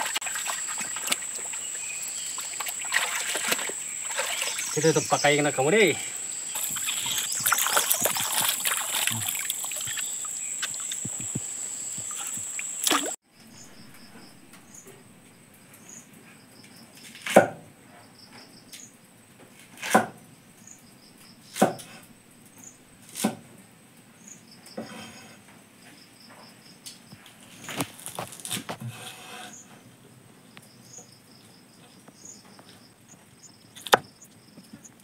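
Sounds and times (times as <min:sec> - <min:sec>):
hands rinsing in stream water: 0:00.0 - 0:05.8, 0:06.6 - 0:13.2
cleaver chopping on wooden board: 0:19.8 - 0:20.2.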